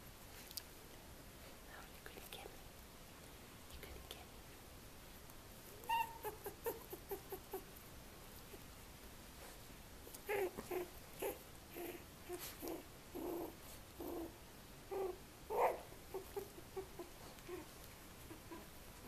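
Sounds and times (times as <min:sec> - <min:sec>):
puppies whimpering and squeaking: 0:05.8 - 0:07.7, 0:10.2 - 0:14.3, 0:14.9 - 0:18.8.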